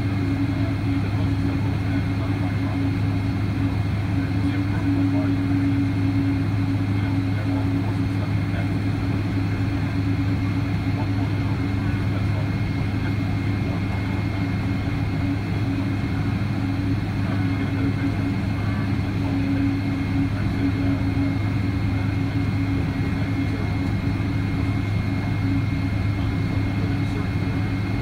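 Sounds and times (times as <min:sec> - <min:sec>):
jet engines humming: 0:00.0 - 0:28.0.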